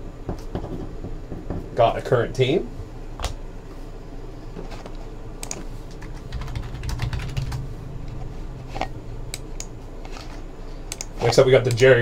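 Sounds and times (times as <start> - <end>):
computer keyboard keystrokes: 5.4 - 7.6, 10.9 - 11.1.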